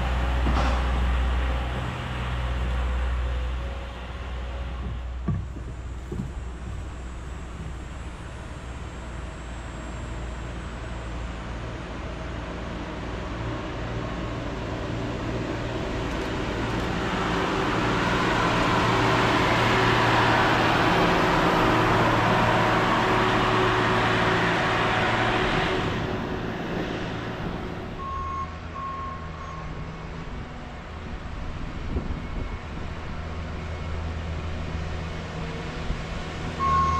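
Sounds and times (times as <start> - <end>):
rail machine passing on tracks: 0.0 - 36.9
high warning beeps: 36.6 - 36.9.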